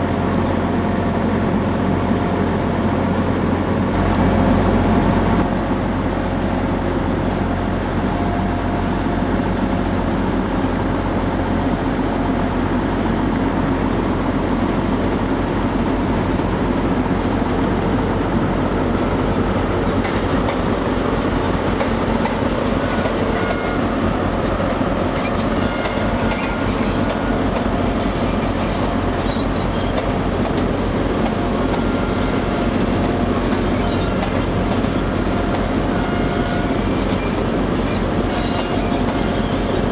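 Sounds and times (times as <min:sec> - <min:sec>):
diesel engine drone: 0:00.0 - 0:39.9
wheel or brake squeals: 0:00.7 - 0:02.2, 0:22.8 - 0:24.1, 0:25.2 - 0:30.2, 0:33.6 - 0:39.9
train wheels clicking over rail joints: 0:19.8 - 0:39.9.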